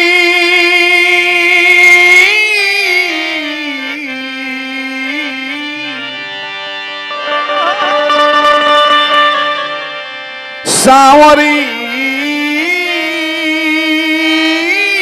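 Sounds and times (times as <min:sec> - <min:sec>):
harmonium: 0:00.0 - 0:15.0
man singing drawn-out notes: 0:07.1 - 0:15.0.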